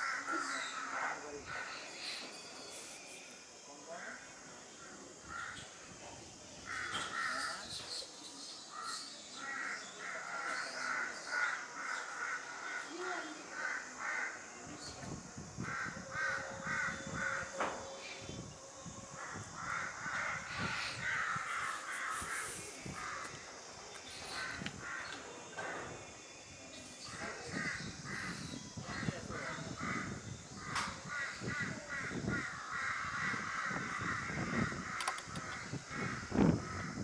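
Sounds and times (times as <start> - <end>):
crows cawing: 4.9 - 5.8, 6.6 - 7.7, 8.7 - 13.0, 13.6 - 14.5, 15.6 - 17.9, 19.1 - 25.3, 27.0 - 37.0.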